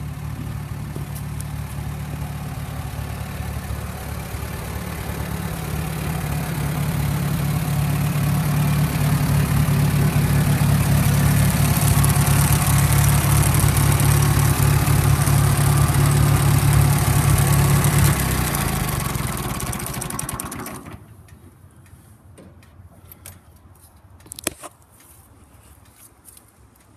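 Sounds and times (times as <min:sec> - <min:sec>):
tractor engine running: 0:00.0 - 0:21.3.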